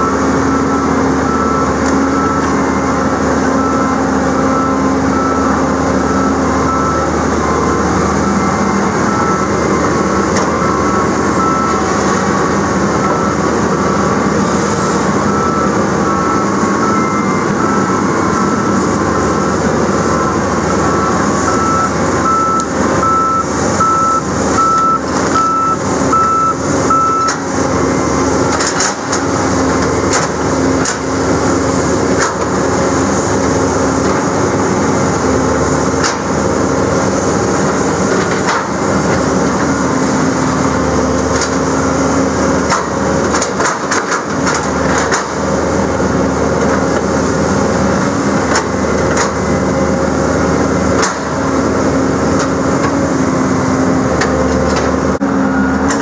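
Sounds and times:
reversing alarm beeping: 0:00.0 - 0:32.1, 0:55.1 - 0:56.0
excavator engine hum: 0:00.0 - 0:56.0.

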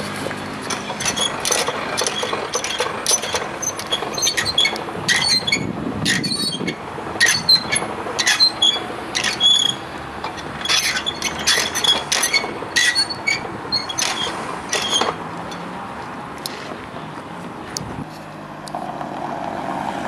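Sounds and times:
hand crank clanking and squeaking: 0:00.0 - 0:15.7.

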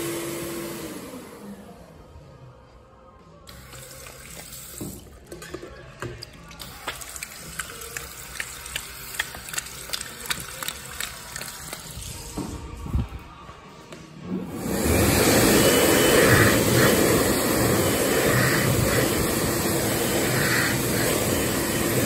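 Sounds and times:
tap water running into sink: 0:03.5 - 0:11.9
water splashing over hands: 0:06.1 - 0:12.2.

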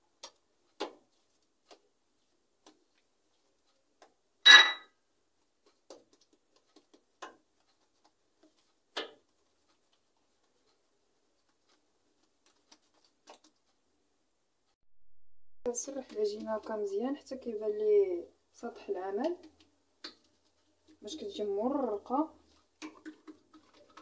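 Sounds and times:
hands patting dough on countertop: 0:00.1 - 0:04.2, 0:05.4 - 0:13.7, 0:19.1 - 0:24.0
sharp ringing clink: 0:04.5 - 0:04.9.

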